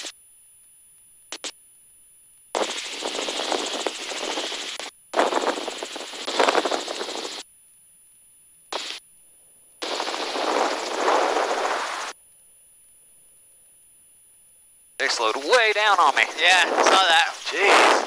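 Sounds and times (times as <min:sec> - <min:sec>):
helicopter cabin rattling: 0:02.6 - 0:07.4.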